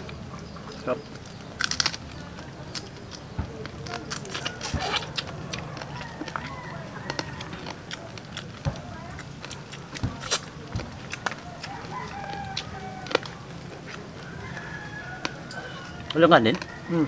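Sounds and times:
crab shells cracking: 0:00.1 - 0:16.8
rooster crowing: 0:05.3 - 0:07.8, 0:11.6 - 0:13.4, 0:14.2 - 0:17.0.

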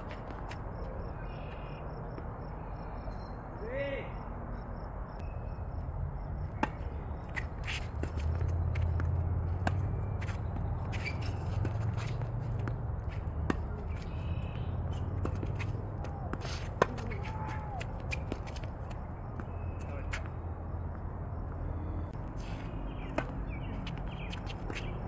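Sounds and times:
tennis racket hitting ball: 0:06.6 - 0:20.3.

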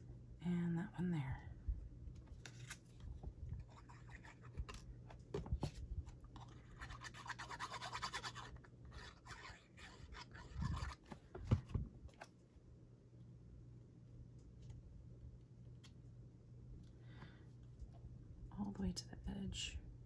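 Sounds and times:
paper rubbing and sliding: 0:06.8 - 0:11.2.

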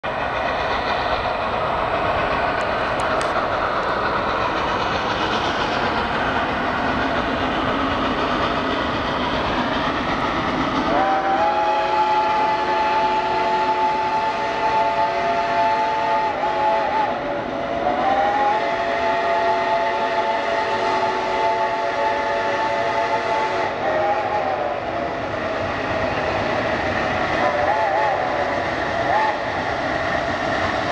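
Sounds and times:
distant steam locomotive rushing: 0:00.0 - 0:30.9
steam whistle blasts: 0:10.9 - 0:17.2, 0:17.8 - 0:24.9, 0:27.3 - 0:29.7.

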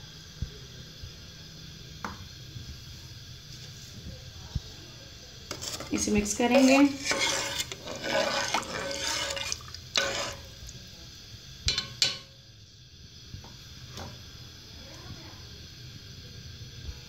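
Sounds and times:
water swishing in a pot: 0:05.1 - 0:12.3
spoon tapping a metal pot: 0:11.7 - 0:12.3.

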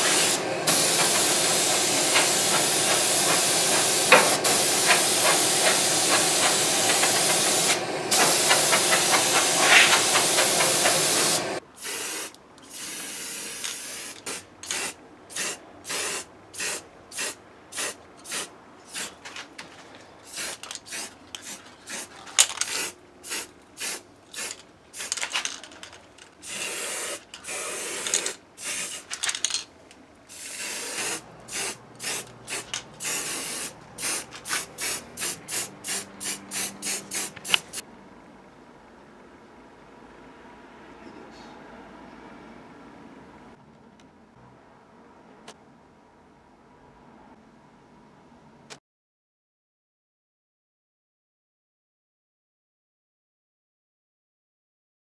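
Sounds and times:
paint spray gun hissing: 0:00.0 - 0:19.1, 0:20.3 - 0:25.4, 0:26.4 - 0:29.4, 0:30.3 - 0:37.8
aerosol spray can bursts: 0:00.0 - 0:19.2, 0:20.3 - 0:25.6, 0:26.4 - 0:29.5, 0:30.3 - 0:37.8.

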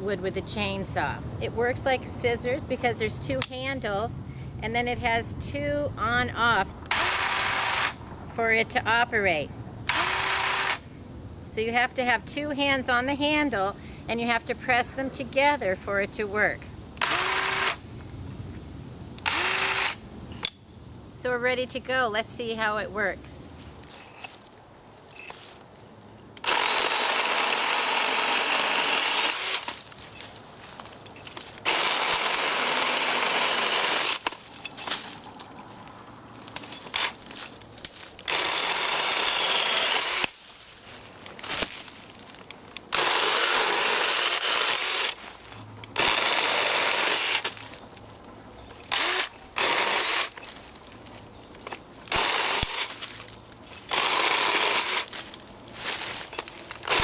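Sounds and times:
chainsaw cutting branches: 0:06.9 - 0:08.0, 0:09.9 - 0:10.8, 0:17.0 - 0:17.8, 0:19.2 - 0:20.0, 0:26.4 - 0:30.2, 0:31.2 - 0:35.3, 0:36.4 - 0:40.6, 0:41.2 - 0:47.8, 0:48.8 - 0:51.0, 0:51.6 - 0:57.0
branches knocking and rustling: 0:29.3 - 0:32.3, 0:34.1 - 0:43.0, 0:47.2 - 0:57.0.

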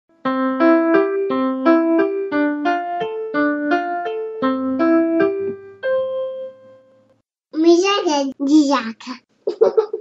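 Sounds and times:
piano-like keyboard tune: 0:00.1 - 0:07.2.

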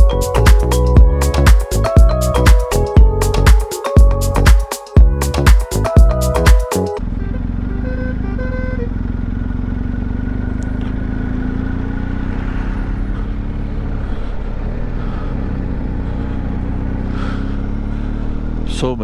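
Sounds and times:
motorcycle engine cruising: 0:00.0 - 0:19.0
road and wind noise: 0:06.1 - 0:19.0.

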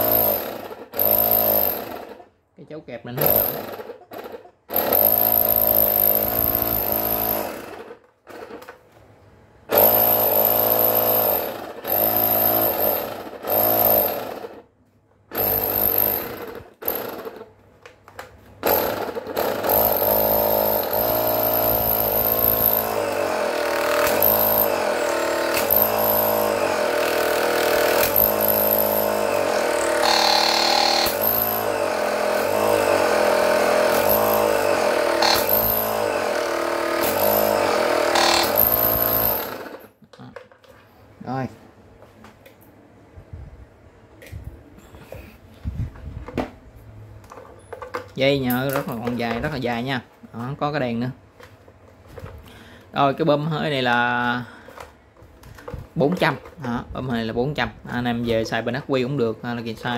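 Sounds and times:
electric air pump running: 0:00.0 - 0:02.2, 0:09.7 - 0:14.6, 0:15.3 - 0:17.5, 0:18.6 - 0:39.9.

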